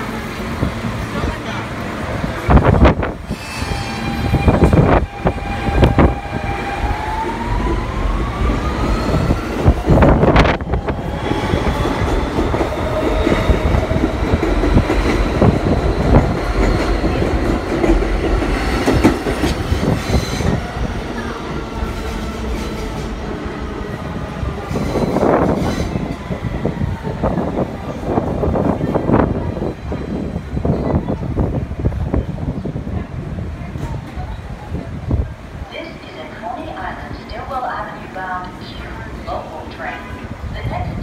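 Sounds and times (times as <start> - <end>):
train wheels clattering on rails: 11.4 - 20.6.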